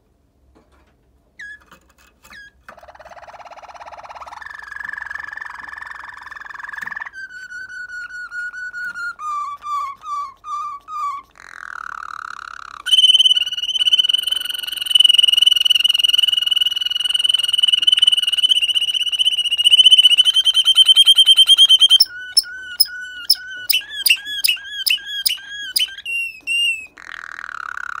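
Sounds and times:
canary singing: 1.4s - 28.0s.

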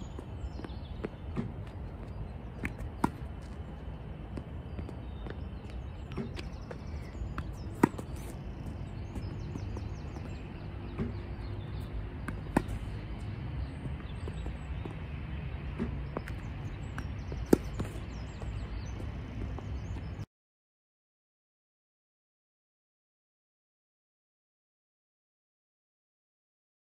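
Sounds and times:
low outdoor rumble: 0.0s - 20.2s
birds chirping: 0.0s - 20.3s
tennis racket hitting ball: 2.6s - 3.4s, 7.3s - 13.2s, 17.0s - 18.1s.

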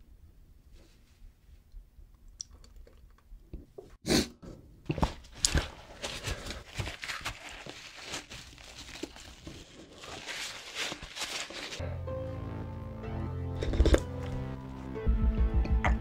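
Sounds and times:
paper tissue crinkling: 5.2s - 11.8s.

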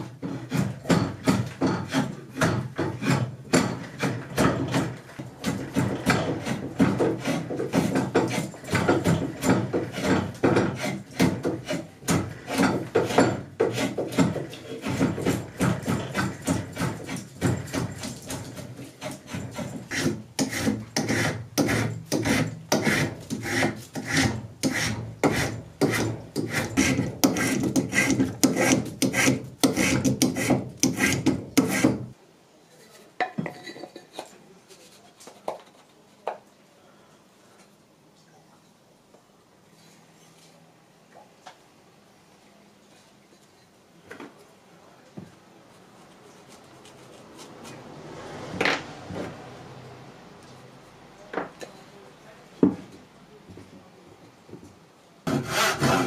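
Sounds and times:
file scraping wood: 0.0s - 32.2s, 55.3s - 56.0s.

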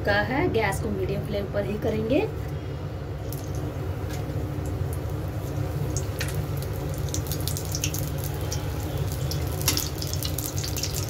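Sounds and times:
food sizzling in hot oil: 3.2s - 11.0s.

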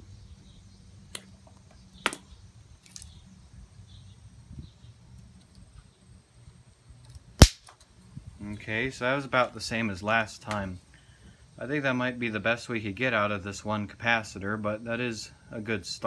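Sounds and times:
capacitor discharging loud pop: 7.4s - 7.8s.

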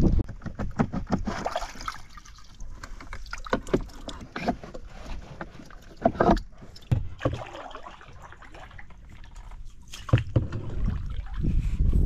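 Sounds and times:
steady water noise: 0.9s - 12.0s
paddle knocking on canoe hull: 9.9s - 11.0s.

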